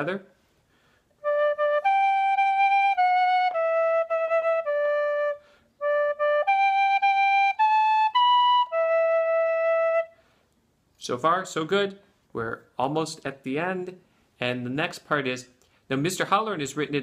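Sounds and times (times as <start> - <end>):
tin whistle melody: 1.2 - 10.2.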